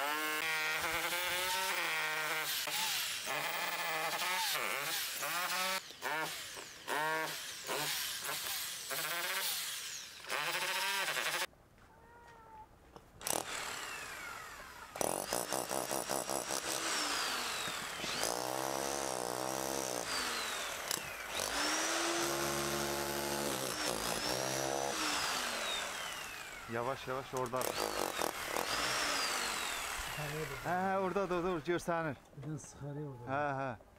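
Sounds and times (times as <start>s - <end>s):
demolition hammer chiselling stone: 15.0s - 25.8s, 27.4s - 30.5s.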